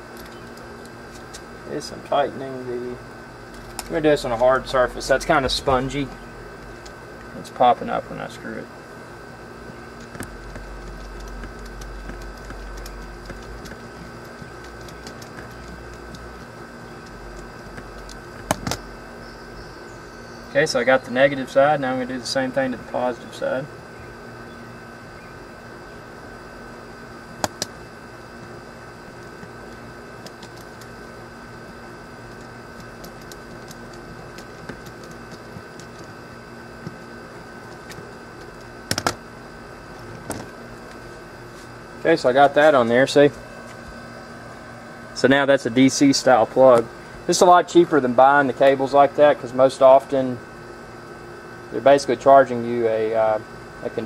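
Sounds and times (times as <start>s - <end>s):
faint whine: 0.0s - 50.4s
steady hum: 0.0s - 54.0s
screwdriver clicks and ticks: 10.0s - 18.8s.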